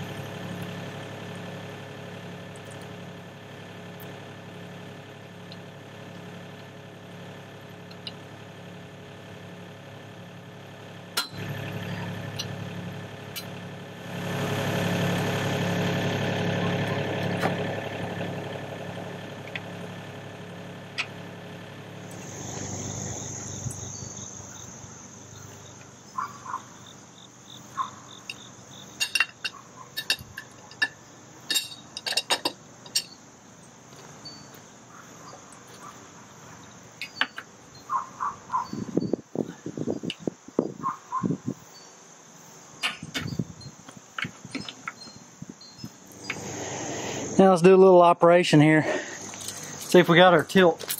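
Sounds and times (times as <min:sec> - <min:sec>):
diesel engine idling: 0:00.0 - 0:41.5, 0:42.6 - 0:50.9
high insect trill: 0:19.0 - 0:50.9
sharp clicks and clinks: 0:28.2 - 0:33.2, 0:37.0 - 0:37.5.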